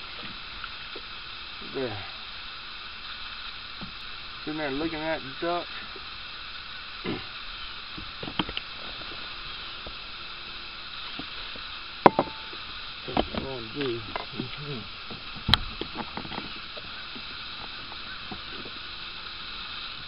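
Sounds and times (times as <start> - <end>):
steady hiss: 0.0 - 20.0
low voice muttering: 7.0 - 7.3
sharp knock: 12.1 - 12.5.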